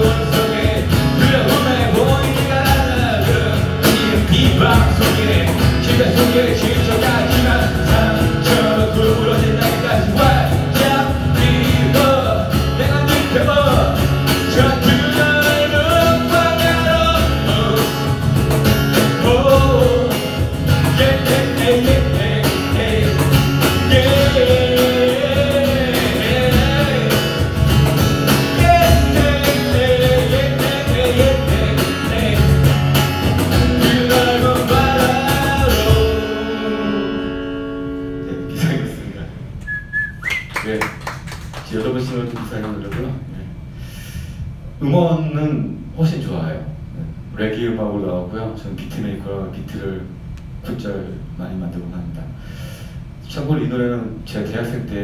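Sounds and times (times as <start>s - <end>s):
man singing into a microphone: 0.0s - 18.2s, 19.0s - 27.6s, 28.4s - 32.9s, 33.5s - 37.3s
strummed acoustic guitar: 0.0s - 39.1s.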